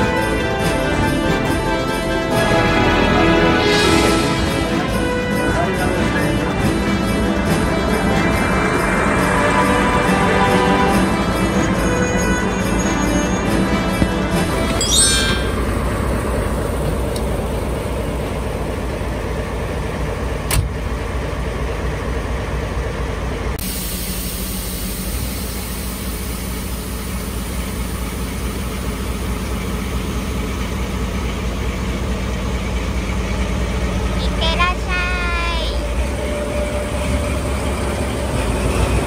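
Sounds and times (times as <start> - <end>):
diesel locomotive idling: 0.0 - 39.0.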